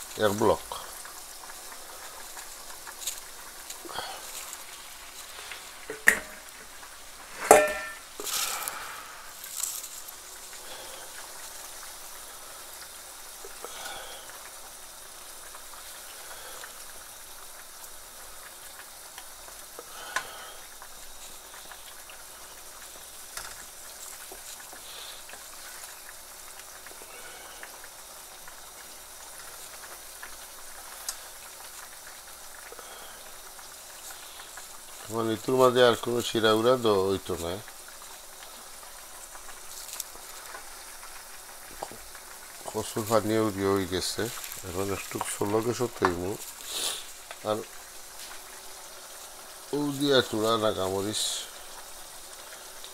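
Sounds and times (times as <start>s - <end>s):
curry sizzling in a frying pan: 0.0s - 52.9s
spatula knocking and scraping pan: 5.9s - 6.5s, 7.3s - 8.1s.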